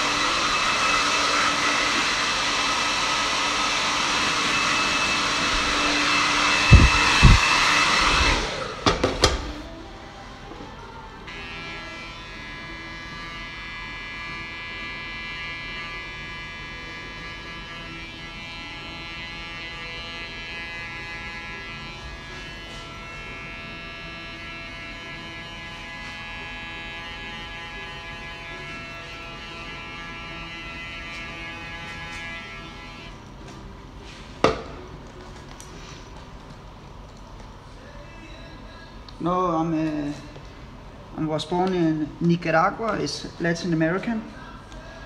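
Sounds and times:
hair clipper buzzing: 0.0s - 9.6s, 11.3s - 33.3s.

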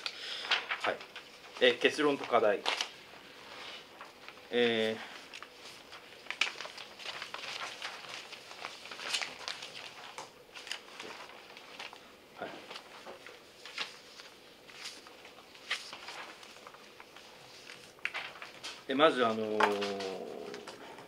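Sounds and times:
paper sheets rustling: 0.0s - 21.0s.

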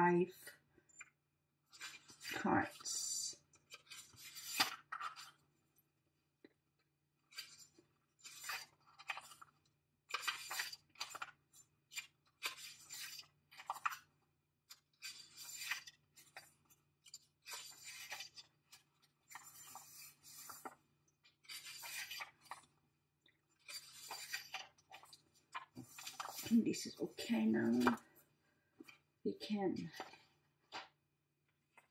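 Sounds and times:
paper pages rustling: 1.7s - 2.4s, 3.6s - 5.5s, 7.2s - 29.1s, 29.9s - 31.0s.

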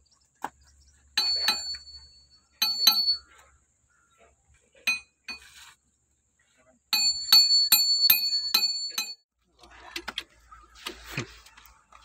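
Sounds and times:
metal tool clinking on wheel hub: 1.2s - 3.2s.

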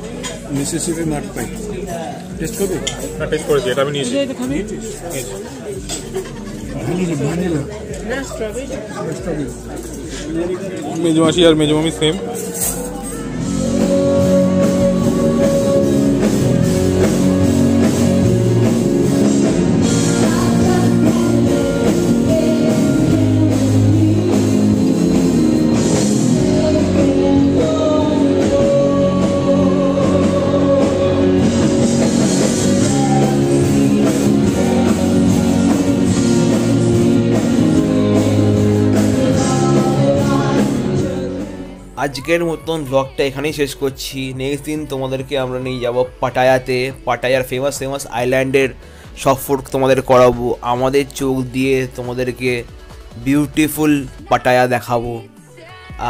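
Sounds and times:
bass guitar: 0.0s - 3.7s, 11.2s - 42.7s
keyboard: 0.0s - 56.0s
drum kit: 11.2s - 41.9s, 47.7s - 54.6s
electric guitar: 12.2s - 41.9s
woman singing: 13.6s - 17.1s, 19.8s - 43.6s, 54.2s - 56.0s.

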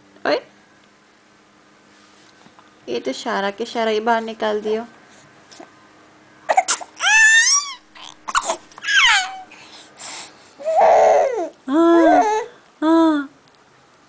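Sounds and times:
baby squealing and crying: 6.5s - 9.5s, 10.6s - 12.5s.

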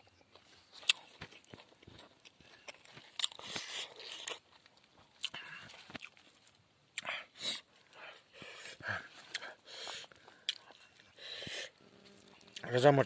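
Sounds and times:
person crunching and chewing: 0.1s - 8.0s, 9.0s - 12.7s
food rustling and clicking: 0.2s - 6.6s.

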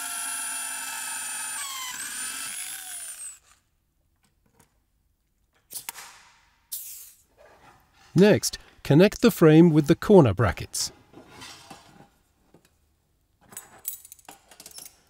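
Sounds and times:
electric drill drilling steel: 0.0s - 3.6s.

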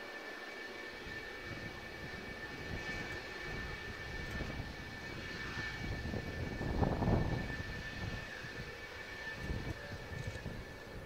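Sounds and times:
jet engines whining: 0.0s - 11.0s.

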